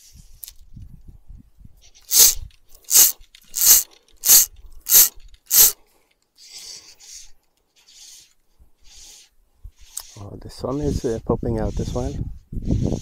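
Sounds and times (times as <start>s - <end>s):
fishing reel click drag buzzing: 2.1s - 5.8s.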